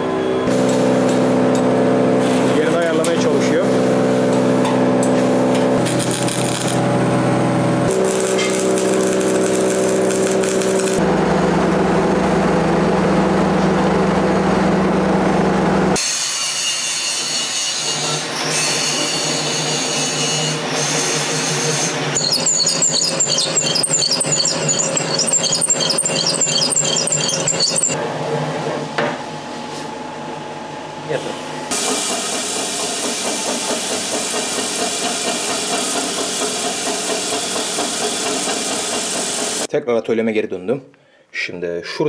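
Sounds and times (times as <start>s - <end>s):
electric welding on steel: 5.8s - 7.0s, 7.8s - 11.0s, 22.2s - 28.0s
drill press squealing: 7.9s - 11.0s, 17.7s - 28.0s.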